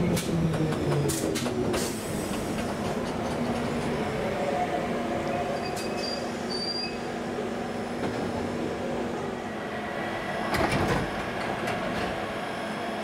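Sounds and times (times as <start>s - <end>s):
electric train humming: 7.1s - 13.0s.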